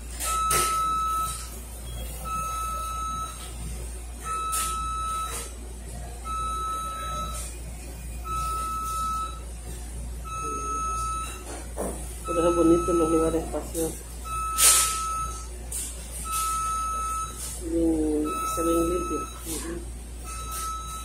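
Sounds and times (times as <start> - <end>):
electronic alarm beeping: 0.2 - 3.4, 4.2 - 5.5, 6.2 - 7.5, 8.2 - 9.4, 10.2 - 11.4, 12.2 - 15.5, 16.2 - 21.0.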